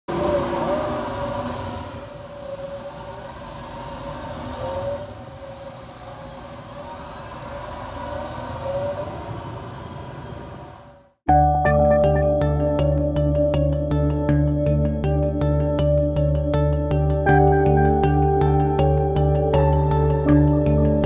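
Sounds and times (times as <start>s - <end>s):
vehicle engine rumble with whine: 0.1s - 11.0s.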